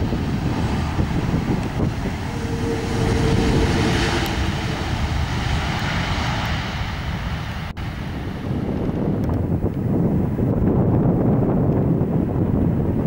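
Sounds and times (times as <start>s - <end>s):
jet engines roaring: 0.0s - 9.4s
wind rumble on microphone: 0.0s - 13.0s
droning tone: 0.5s - 7.8s.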